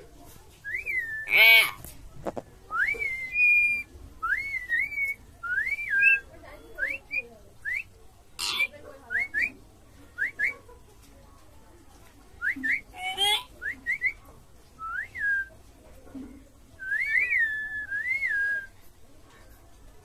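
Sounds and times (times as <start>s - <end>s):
whistling: 0.6s - 1.4s, 2.7s - 8.0s, 12.4s - 12.9s, 13.6s - 14.2s, 14.8s - 15.5s, 16.8s - 18.7s
harsh squawk: 1.2s - 1.8s, 8.4s - 8.7s, 12.9s - 13.5s.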